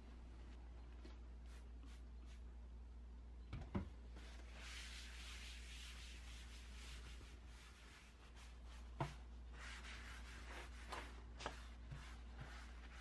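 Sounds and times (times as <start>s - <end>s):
hand wiping wooden desk: 4.2s - 13.0s.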